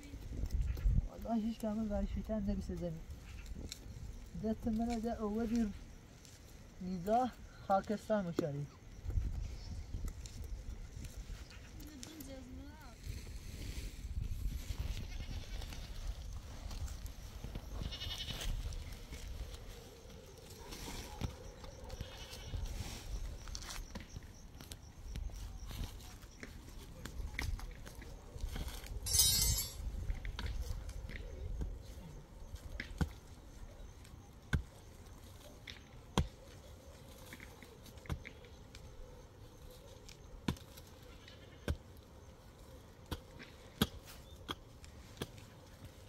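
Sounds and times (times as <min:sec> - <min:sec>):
goats bleating: 0:17.8 - 0:18.4, 0:22.0 - 0:22.7
soil and stone scraping: 0:25.8 - 0:31.6
pickaxe striking stony ground: 0:29.1 - 0:29.8.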